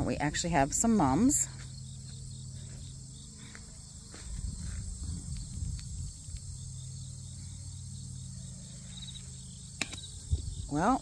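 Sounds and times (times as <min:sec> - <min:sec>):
insects chirping: 0:00.1 - 0:11.0
low rumble: 0:04.3 - 0:10.7.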